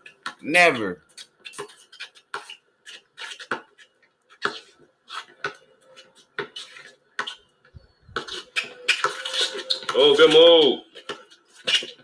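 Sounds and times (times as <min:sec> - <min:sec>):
basketball bouncing on asphalt: 0:06.3 - 0:07.4.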